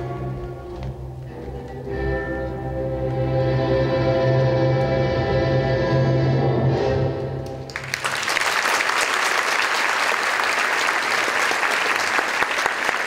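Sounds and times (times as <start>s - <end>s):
audience applause: 7.7s - 13.0s.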